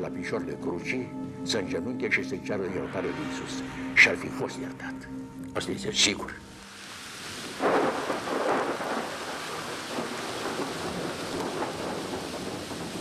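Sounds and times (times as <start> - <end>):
heavy rain: 6.4 - 13.0
thunder rumbling: 7.2 - 13.0.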